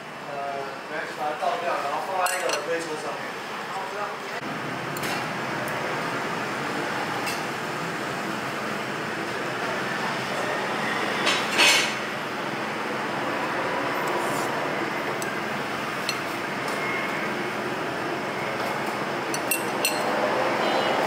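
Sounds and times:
utensils clinking on ceramic bowl: 2.2 - 2.7, 19.3 - 20.1.

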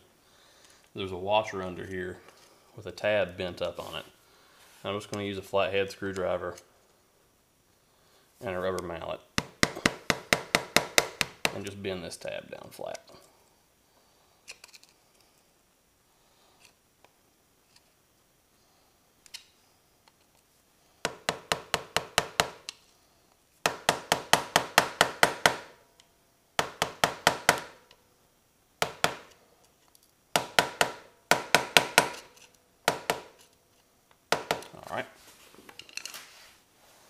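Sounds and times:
mallet tapping screwdriver on metal: 9.4 - 11.6, 30.4 - 33.5.

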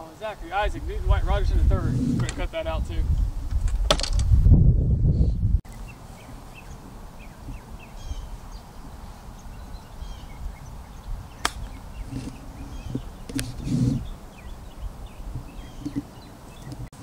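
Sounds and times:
small birds chirping: 4.8 - 17.0
golf club striking ball: 11.3 - 11.8.

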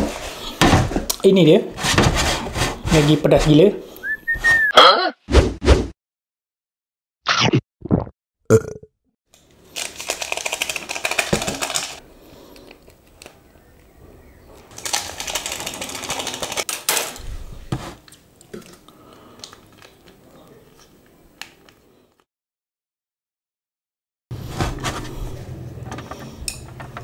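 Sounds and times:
plastic sachets crinkling and tearing: 9.4 - 13.4, 14.7 - 17.2, 18.4 - 20.2.

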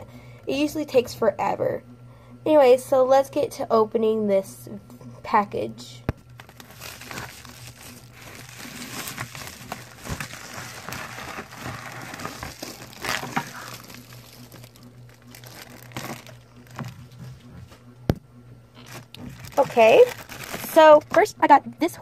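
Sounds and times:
plastic bag crinkling: 6.3 - 17.5, 18.8 - 21.3.

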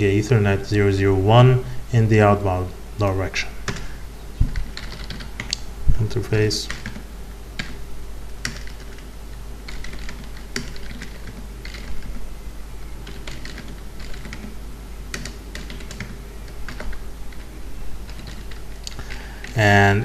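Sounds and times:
keyboard typing: 3.7 - 3.9, 4.5 - 5.6, 6.7 - 7.0, 8.4 - 9.1, 9.7 - 12.2, 13.0 - 19.6.

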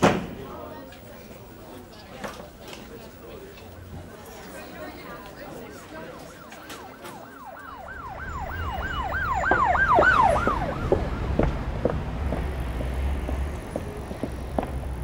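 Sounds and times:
siren yelping: 5.3 - 11.1
footsteps on pavement: 9.2 - 15.0.

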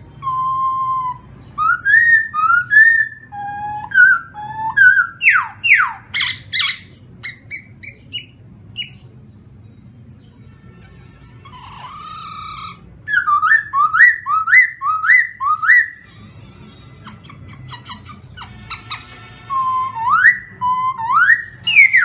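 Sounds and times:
bird singing loud clear whistles: 0.2 - 9.0, 11.6 - 16.0, 17.8 - 22.0.

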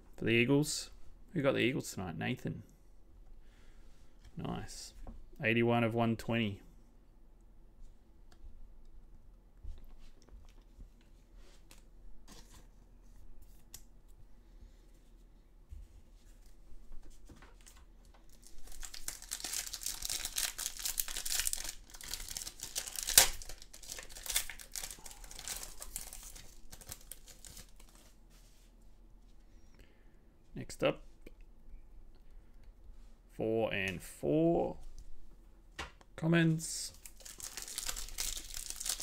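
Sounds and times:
foil wrapper tearing and crinkling: 18.4 - 28.0, 37.0 - 39.0.

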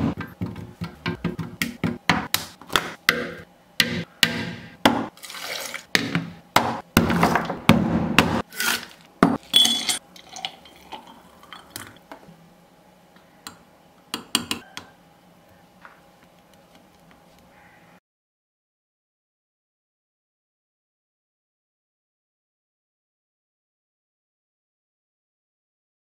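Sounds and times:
spoon clinking on glass: 9.4 - 11.0
milkshake pouring into glass: 10.1 - 12.0.

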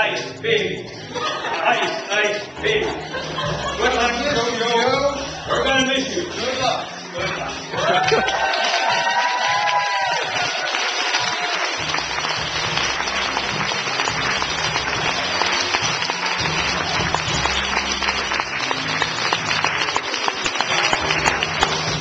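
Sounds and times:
music playing: 0.0 - 22.0
audience applauding: 7.4 - 22.0.

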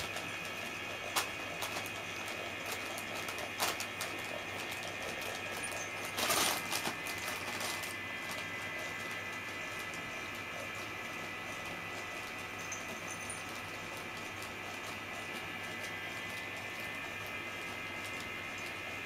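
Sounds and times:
plastic bag toy rustling: 1.1 - 9.2.

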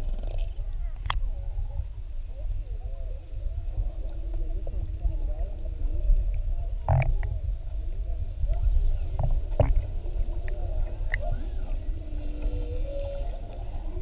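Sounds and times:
low rumble of water: 0.0 - 14.0
whale song underwater: 8.5 - 14.0.

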